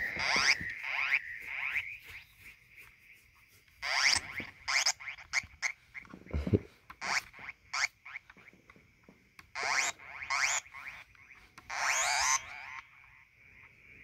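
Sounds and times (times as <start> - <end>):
synthesizer squeaky blips: 0.0 - 2.3, 3.8 - 5.5, 9.6 - 13.1.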